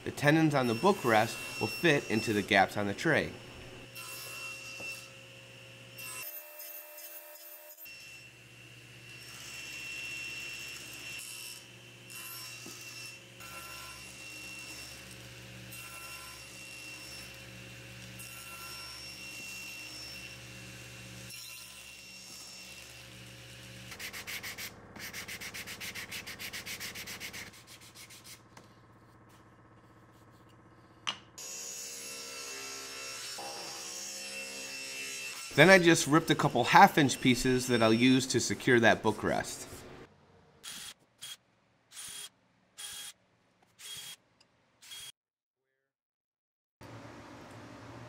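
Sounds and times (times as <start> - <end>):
table saw humming: 0.0 - 6.6, 24.7 - 41.4
saw blade rasping through wood: 23.8 - 28.5.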